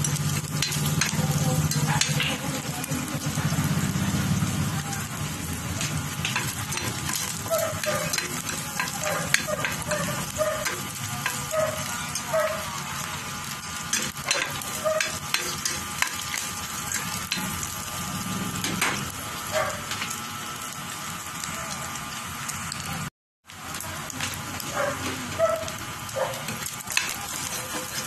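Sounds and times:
metal spoon stirring in a pan: 0:00.0 - 0:03.4, 0:05.8 - 0:12.8, 0:13.6 - 0:17.7, 0:24.6 - 0:28.0
meat sizzling in a pan: 0:00.0 - 0:28.0.

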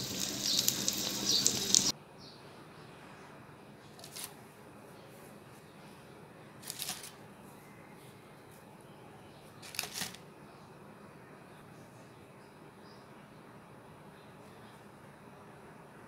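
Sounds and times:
faint steady hiss: 0:00.0 - 0:02.0
parchment paper rustling: 0:04.0 - 0:04.4, 0:06.6 - 0:07.2, 0:09.6 - 0:10.2.

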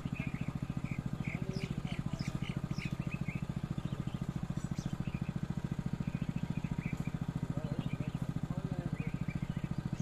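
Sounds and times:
small engine chugging: 0:00.0 - 0:10.0.

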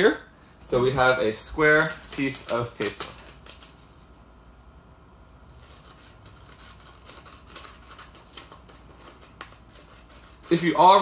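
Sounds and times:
scissors cutting paper: 0:05.6 - 0:10.9.

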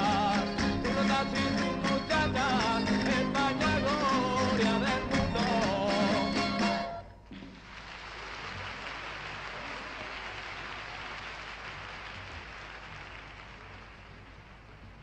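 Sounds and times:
audience applauding: 0:07.5 - 0:15.0.

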